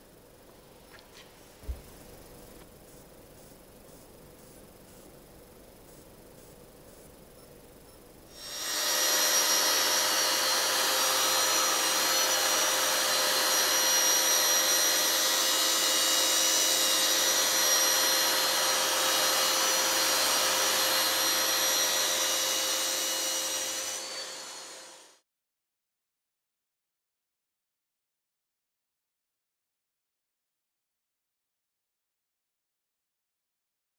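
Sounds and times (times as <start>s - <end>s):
electric sander motor whine: 8.3s - 25.2s
sanding pad on wall: 8.4s - 25.2s.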